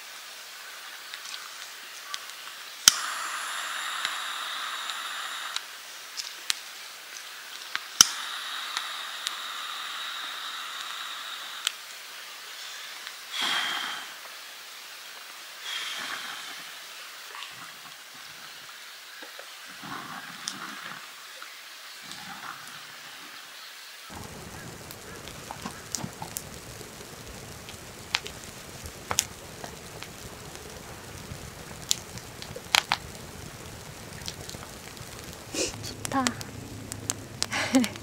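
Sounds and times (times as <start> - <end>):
gas torch hissing: 2.8 - 18.9, 24.1 - 38.0
gas torch igniter click: 2.9 - 3.2.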